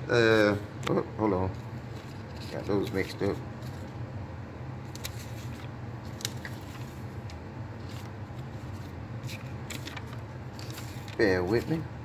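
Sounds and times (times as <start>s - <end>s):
steady low hum: 0.0s - 12.0s
paper rustling and crinkling: 1.5s - 4.0s, 4.8s - 7.2s, 7.8s - 11.9s.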